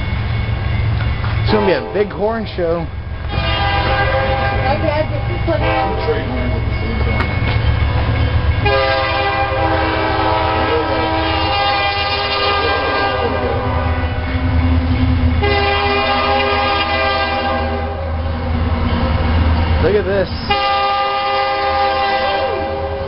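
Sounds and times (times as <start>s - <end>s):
locomotive rumble: 0.0s - 23.0s
locomotive air horn: 3.2s - 6.4s, 8.6s - 14.6s, 15.4s - 18.2s, 20.4s - 23.0s.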